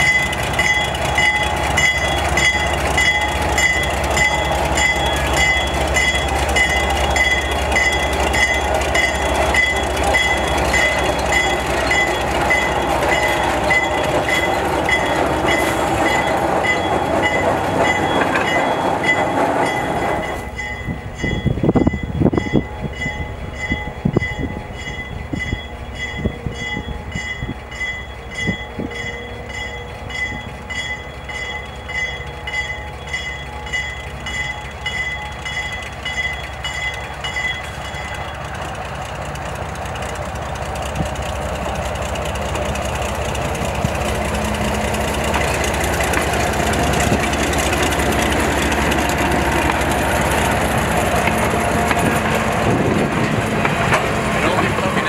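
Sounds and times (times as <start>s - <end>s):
diesel switcher engine: 0.0s - 55.0s
locomotive bell ringing: 0.0s - 55.0s
train wheels rolling: 0.0s - 55.0s.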